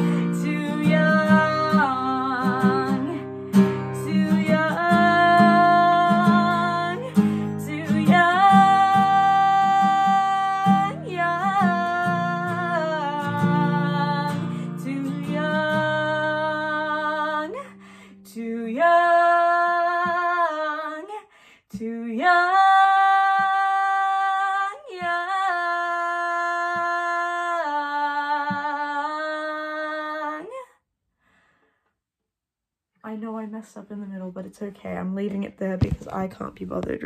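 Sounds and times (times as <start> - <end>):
woman singing: 0.0 - 30.7
faint taps: 35.8 - 37.0.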